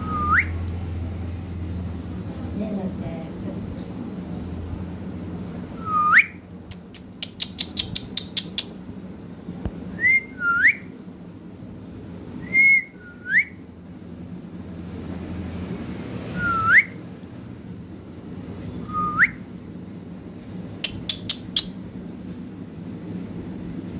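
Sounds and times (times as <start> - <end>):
parakeets whistling: 0.0 - 0.6, 16.4 - 17.0
sharp clicks: 6.7 - 8.8, 20.8 - 21.8.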